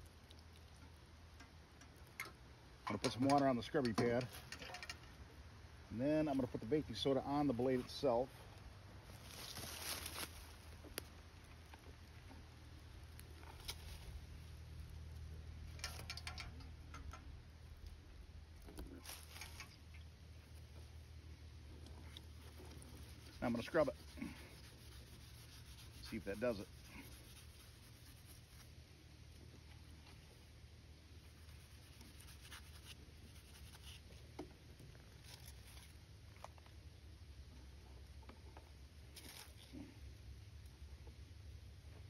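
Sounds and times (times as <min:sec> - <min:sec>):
light clicks and taps: 0:15.7 - 0:18.0.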